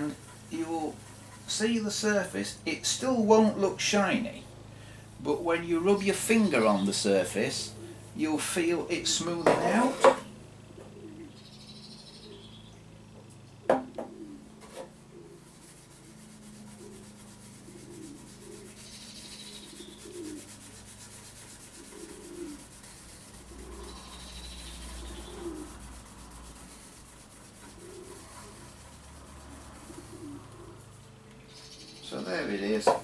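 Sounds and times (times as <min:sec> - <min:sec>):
sharp knocks: 0:13.7 - 0:14.9
cloth rubbing on plastic: 0:15.4 - 0:19.0, 0:19.6 - 0:24.1, 0:24.9 - 0:30.2.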